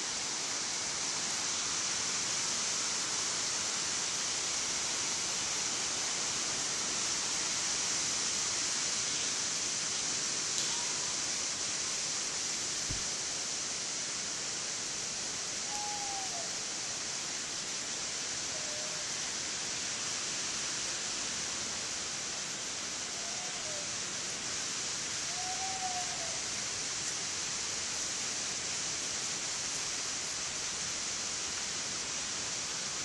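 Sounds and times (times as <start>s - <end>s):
outdoor background hiss: 0.0s - 33.0s
faint rising-and-falling calls: 10.6s - 11.3s, 15.7s - 16.6s, 23.2s - 24.0s, 25.3s - 26.5s.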